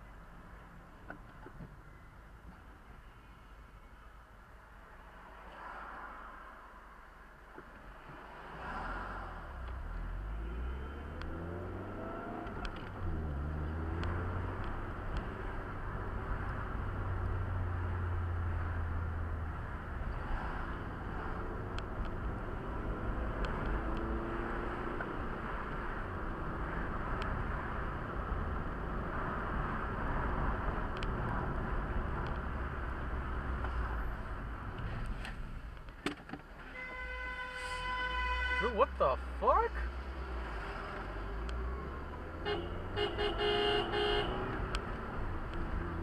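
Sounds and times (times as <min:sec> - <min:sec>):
car engine and tyre rumble: 0:00.0 - 0:46.0.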